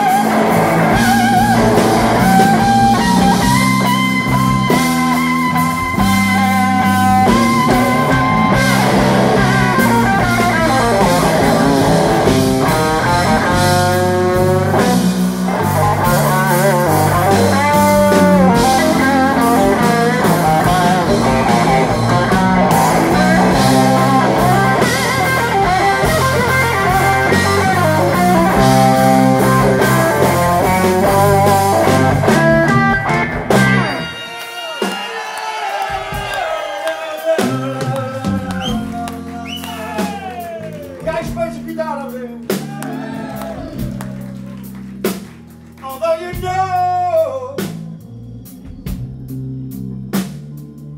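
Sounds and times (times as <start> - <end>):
electric guitar lead lines: 0.0 - 34.3
blues-rock band playing: 0.0 - 50.9.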